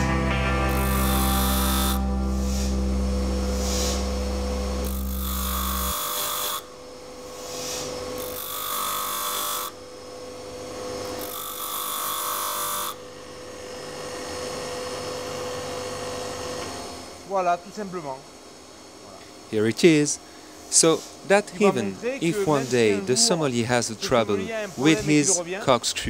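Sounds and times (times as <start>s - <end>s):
bench grinder whining: 0.0s - 17.1s
metal grinding on wheel: 4.8s - 6.6s.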